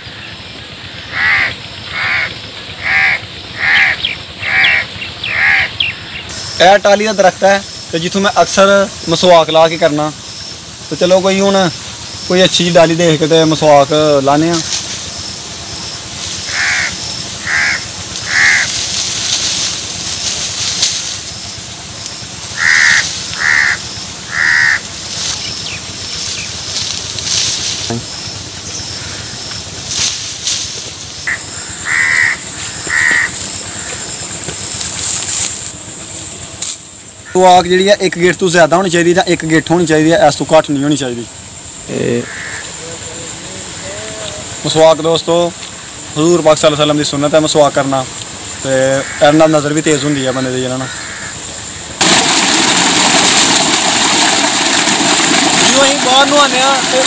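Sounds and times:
crow cawing: 0.0 - 6.3, 16.4 - 19.0, 22.5 - 25.0, 28.8 - 29.6, 31.2 - 34.2, 42.2 - 43.1, 48.8 - 51.9.

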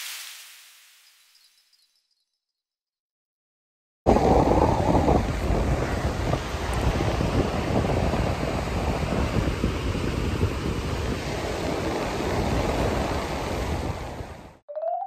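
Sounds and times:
wind buffeting microphone: 4.1 - 14.5.

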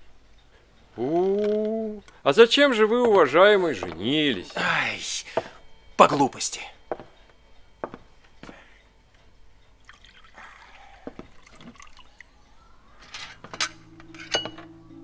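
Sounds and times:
coffee pouring: 9.8 - 12.3.

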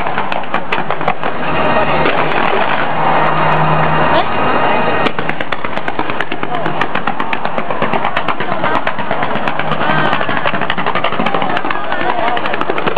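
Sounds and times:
fireworks crackling pops: 0.0 - 3.6, 5.0 - 11.8
steady rushing noise: 0.0 - 12.9.

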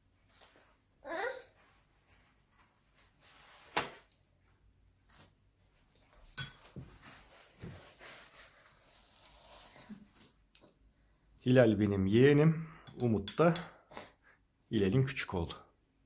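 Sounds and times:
paper napkin rustling: 6.7 - 10.0.

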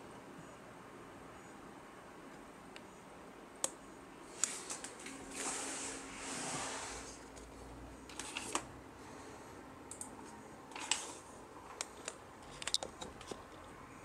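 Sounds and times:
faint steady background noise: 0.0 - 14.0
handling clicks and taps: 11.7 - 13.7.

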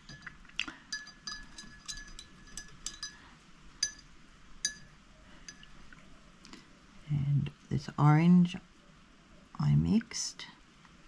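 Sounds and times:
clinks on glass vessel: 0.0 - 5.8.

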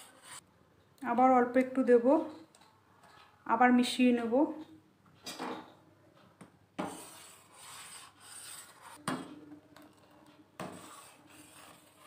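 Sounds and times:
metal spoon scraping a pot: 9.8 - 12.0.

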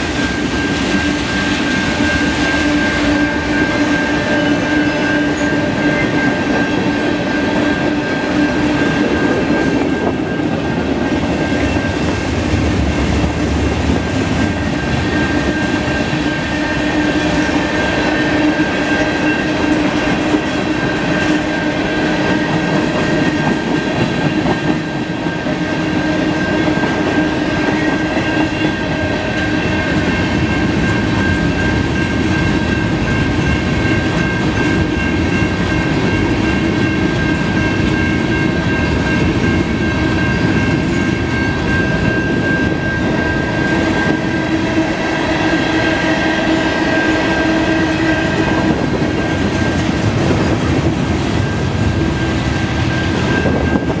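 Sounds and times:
high ringing tone: 0.0 - 13.4, 14.0 - 54.0
train wheels rumbling on rails: 0.0 - 54.0.

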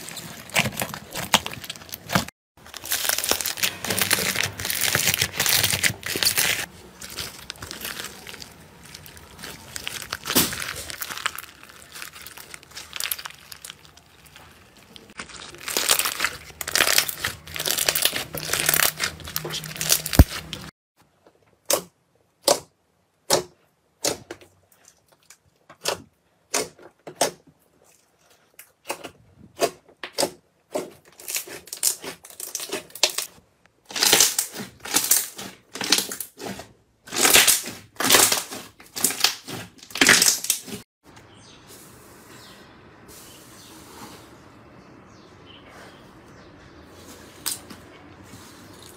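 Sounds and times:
slime crackling and popping: 0.0 - 20.7, 33.9 - 36.5, 37.1 - 40.8.

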